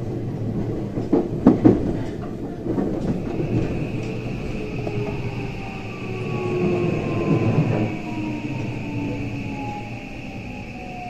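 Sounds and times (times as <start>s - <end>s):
train cabin rumble: 0.0s - 11.0s
high steady inverter whine: 3.1s - 11.0s.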